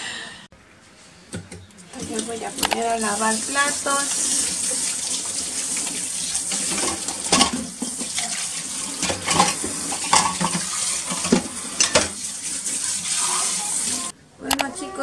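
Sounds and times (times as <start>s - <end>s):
tap running into sink: 1.4s - 12.8s
dishes clinking: 6.5s - 12.2s.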